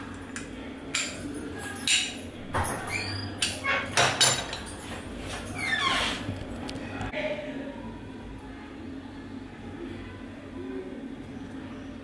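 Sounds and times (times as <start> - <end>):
dishes and utensils clinking: 0.3 - 5.6.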